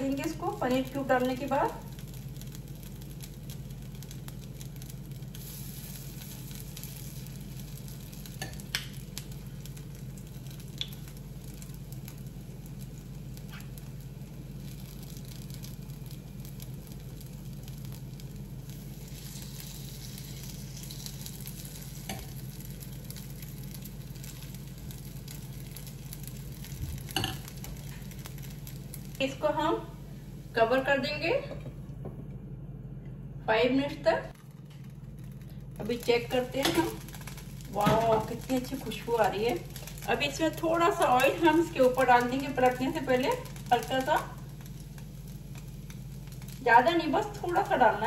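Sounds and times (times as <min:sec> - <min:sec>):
batter sizzling in a pan: 0:00.0 - 0:31.3, 0:34.3 - 0:48.0
steady low hum: 0:00.0 - 0:48.0.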